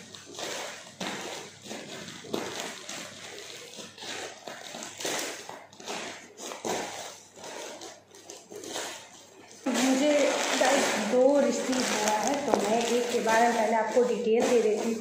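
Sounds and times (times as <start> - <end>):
plastic crinkling and rustling: 0.0 - 15.0
scissors cutting plastic bag: 0.0 - 15.0.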